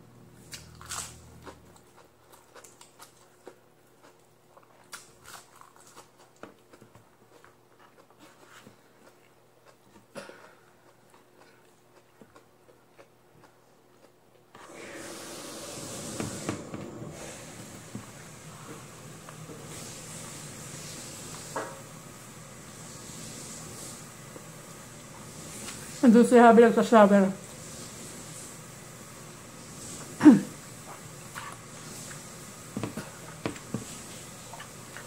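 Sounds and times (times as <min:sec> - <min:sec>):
person chewing food: 0:00.4 - 0:14.7, 0:29.8 - 0:35.0
steady hiss: 0:14.7 - 0:26.4, 0:27.3 - 0:35.0.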